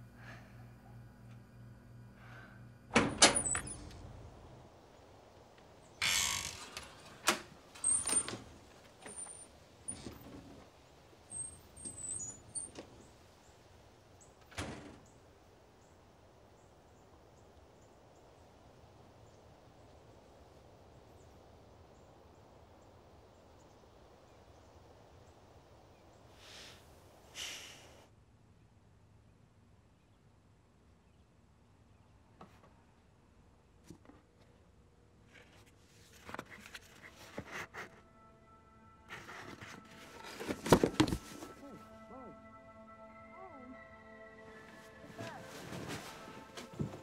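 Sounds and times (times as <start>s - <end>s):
screen door banging shut: 2.9s - 4.0s, 6.0s - 10.6s, 14.4s - 15.1s
rustling: 35.2s - 38.0s, 39.1s - 41.8s, 44.6s - 47.0s.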